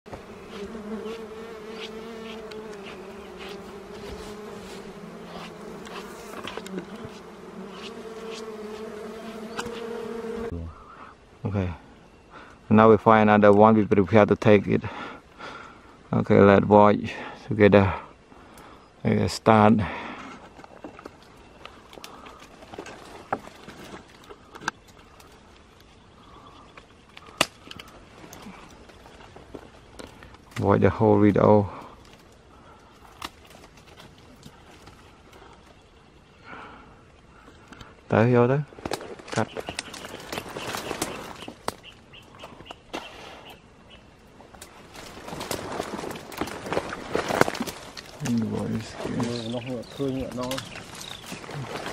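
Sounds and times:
bees buzzing: 0.1s - 10.8s
twigs cracking and rustling: 0.4s - 8.9s, 20.4s - 35.9s, 37.4s - 43.1s, 44.2s - 51.9s
light clicks and rustles: 44.5s - 51.9s.

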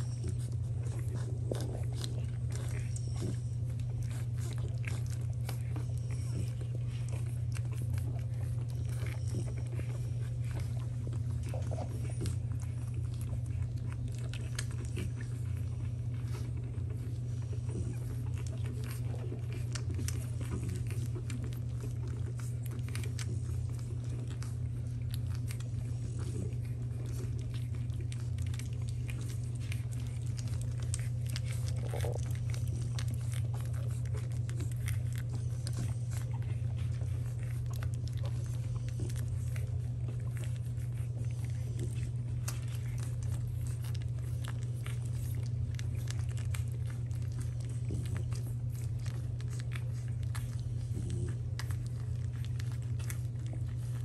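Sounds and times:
puppies suckling: 0.0s - 54.0s.

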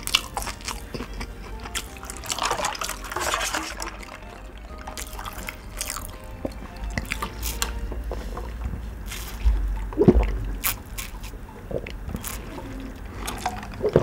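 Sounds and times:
sipping through a straw: 1.7s - 4.1s.

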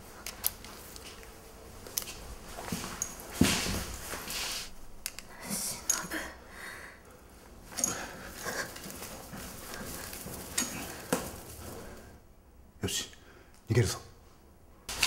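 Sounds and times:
hard uneven hissing breathing: 3.4s - 12.3s
rustling: 7.6s - 12.2s.

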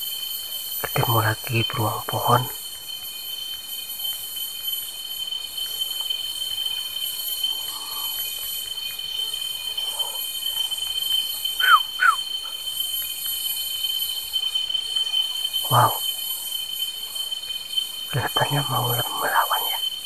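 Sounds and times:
insects droning: 0.0s - 20.0s
animal falling chirps: 11.6s - 12.2s.

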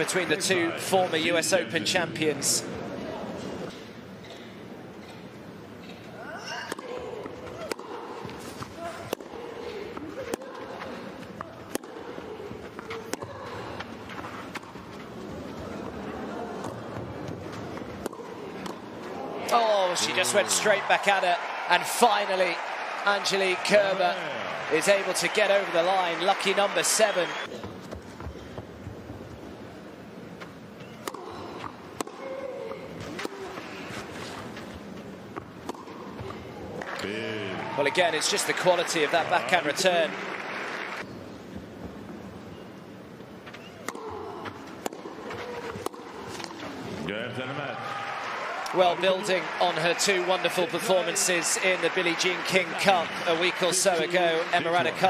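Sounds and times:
steady arena hum: 0.0s - 55.0s
tennis ball struck by rackets: 11.7s - 12.1s, 18.0s - 18.8s, 31.0s - 32.4s, 35.4s - 36.1s, 43.8s - 46.7s.

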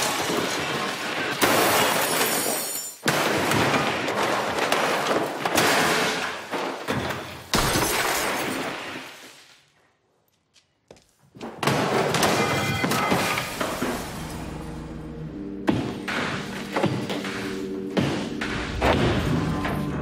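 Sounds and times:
glass shattering: 0.0s - 9.2s, 11.8s - 14.8s.

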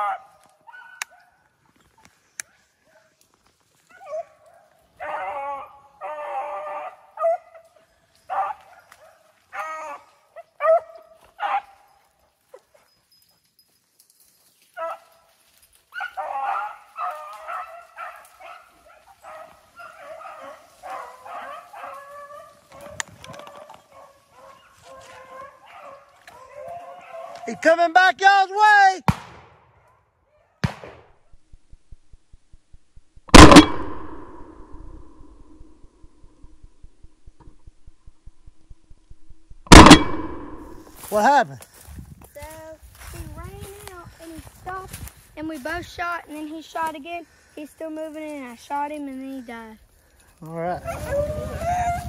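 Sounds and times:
dogs baying: 15.9s - 27.5s, 50.8s - 52.0s.

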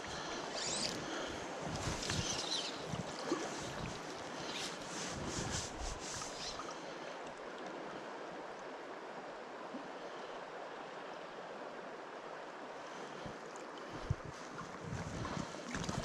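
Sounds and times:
stream flowing over gravel: 1.5s - 7.6s, 14.4s - 16.0s.

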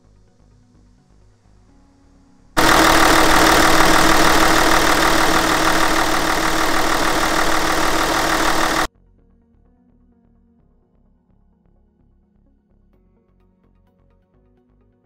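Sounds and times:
diesel engine idling with clatter: 2.6s - 8.9s.

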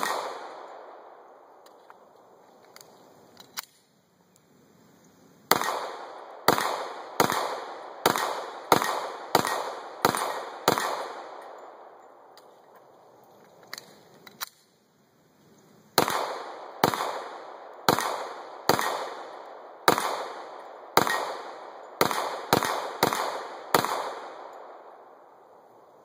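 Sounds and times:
pistol shots with echo: 0.0s - 1.6s, 5.5s - 12.3s, 16.0s - 25.3s.

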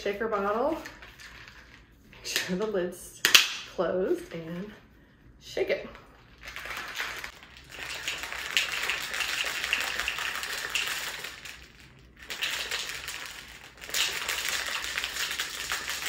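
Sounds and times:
ice rattling in shaker bottle: 6.3s - 16.0s.

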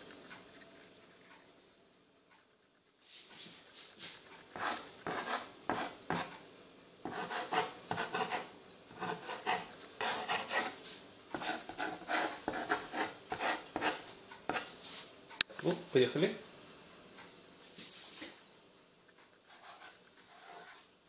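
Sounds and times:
knife tip scratching wooden board: 7.1s - 10.8s, 11.4s - 14.7s, 19.5s - 20.8s.

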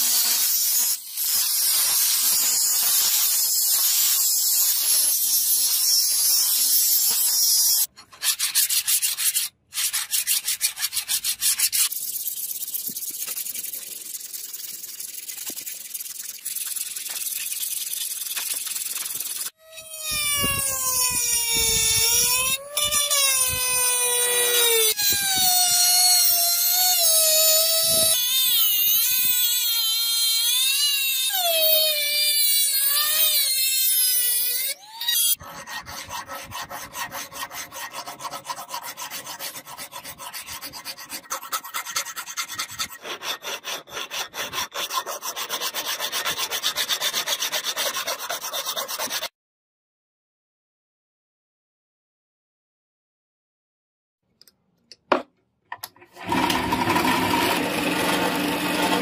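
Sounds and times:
file scraping metal: 0.0s - 12.0s, 30.2s - 49.3s
rotary tool grinding metal: 0.0s - 15.6s, 16.4s - 49.3s, 56.2s - 59.0s.

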